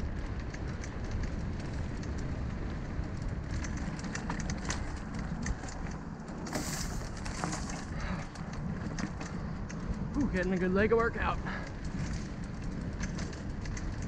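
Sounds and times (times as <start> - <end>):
bike clicks and rattles: 0.0 - 14.0
tyres rumbling on dirt: 0.0 - 14.0.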